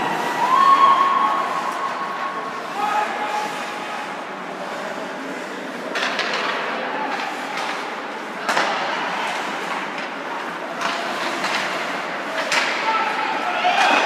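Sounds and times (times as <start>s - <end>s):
skates scraping ice: 0.0s - 14.0s
steady hall hum: 0.0s - 14.0s
scrape and clatter: 2.2s - 12.7s
hockey sticks hitting puck: 5.8s - 14.0s.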